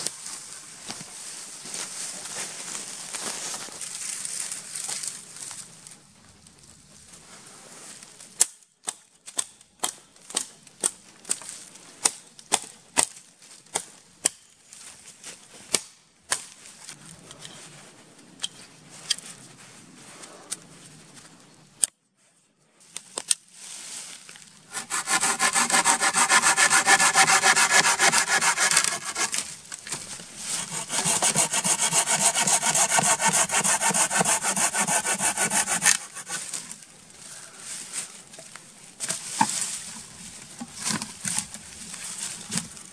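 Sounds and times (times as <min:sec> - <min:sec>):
hatchet chopping wood: 0:24.7 - 0:29.4, 0:30.6 - 0:36.4
hand saw cutting wood: 0:24.7 - 0:36.6.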